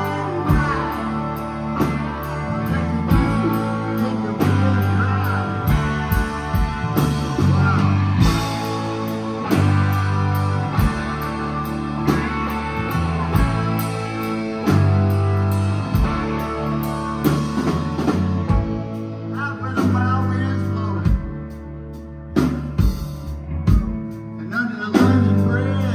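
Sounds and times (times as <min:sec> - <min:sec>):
live rock band playing: 0:00.0 - 0:25.9.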